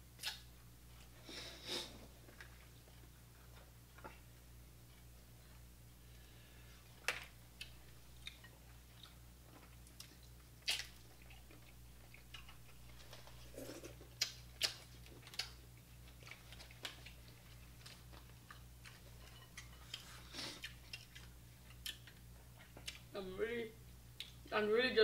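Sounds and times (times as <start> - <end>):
low steady hum: 0.0 - 25.0
chewing: 7.6 - 23.1.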